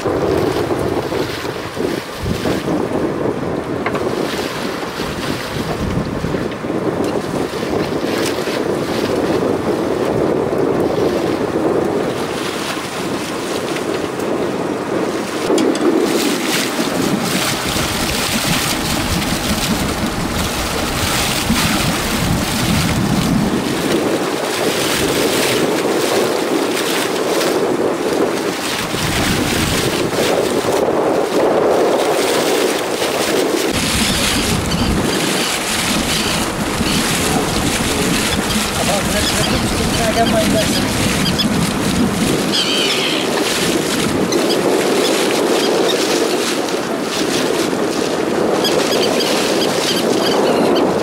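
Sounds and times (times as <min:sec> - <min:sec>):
sea washing against boat hull: 0:00.0 - 0:51.0
wind buffeting microphone: 0:00.0 - 0:51.0.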